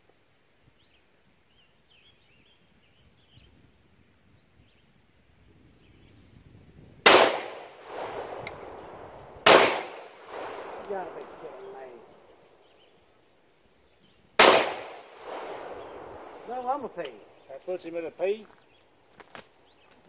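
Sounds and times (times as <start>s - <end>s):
pistol shot: 7.1s - 12.2s, 14.4s - 16.4s
metallic clang of steel target: 9.5s - 11.9s, 14.4s - 17.2s.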